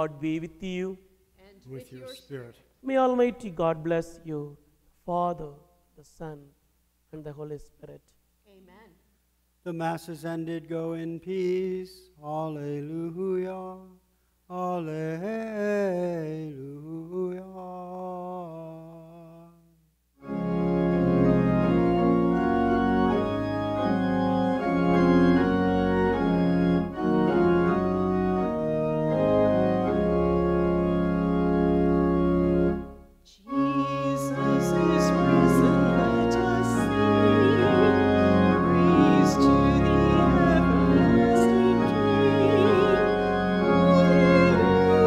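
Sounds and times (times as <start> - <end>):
pipe organ playing a hymn: 20.2 - 45.0
people singing: 33.5 - 45.0.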